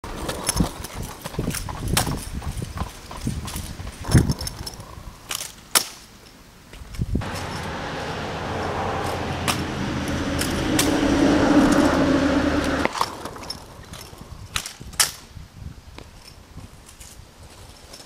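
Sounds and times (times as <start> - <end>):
scooter wheels rolling on asphalt: 0.0 - 5.8, 6.7 - 18.0
scooter clacking on pavement: 0.1 - 4.7.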